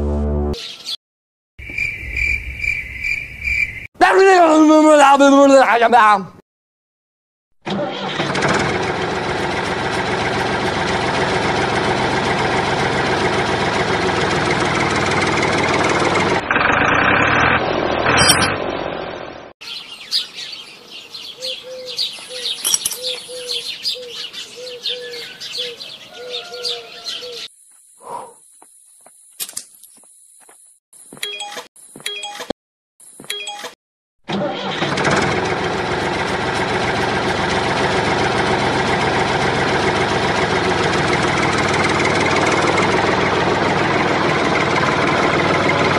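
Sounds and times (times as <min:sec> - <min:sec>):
birds chirping: 0:00.6 - 0:01.0, 0:01.6 - 0:03.9, 0:19.3 - 0:30.6
toy tractor motor running: 0:07.7 - 0:17.4, 0:34.3 - 0:38.5
metal hitch pin clicks: 0:22.6 - 0:23.3.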